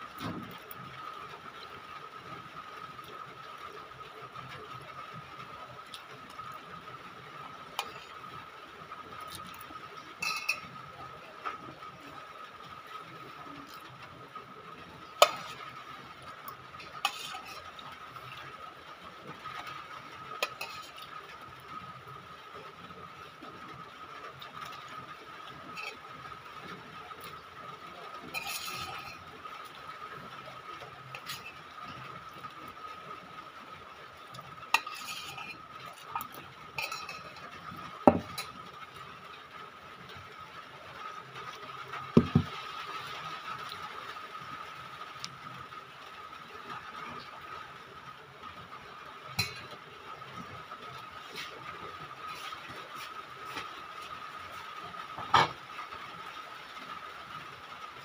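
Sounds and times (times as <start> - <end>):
metal spoon scraping a plate: 7.8 - 8.2, 10.2 - 10.7, 15.2 - 15.7, 17.0 - 17.8, 20.4 - 21.1, 28.3 - 29.2, 31.2 - 31.6, 34.8 - 37.4.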